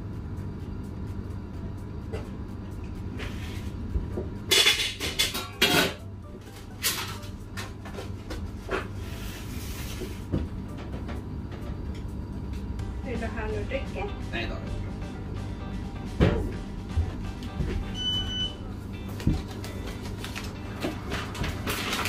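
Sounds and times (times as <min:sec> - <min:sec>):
steady low hum: 0:00.0 - 0:22.0
pans and utensils clattering: 0:04.5 - 0:06.1, 0:06.7 - 0:08.9.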